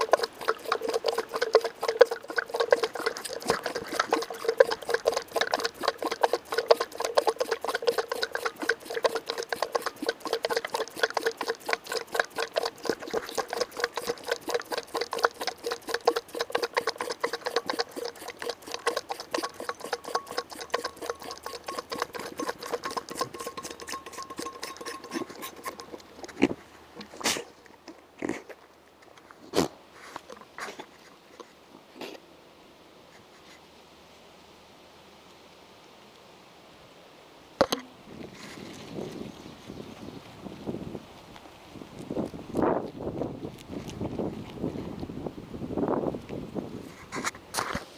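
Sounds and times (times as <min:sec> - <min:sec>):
goat sucking on a bottle nipple: 0:00.0 - 0:31.6, 0:41.4 - 0:45.1.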